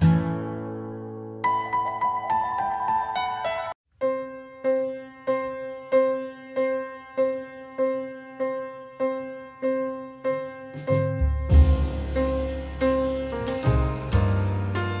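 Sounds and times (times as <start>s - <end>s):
keyboard chord strikes: 10.7s - 15.0s.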